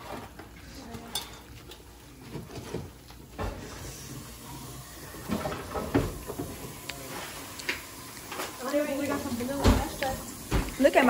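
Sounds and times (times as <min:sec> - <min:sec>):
metal spoon stirring in saucepan: 0:00.0 - 0:03.0.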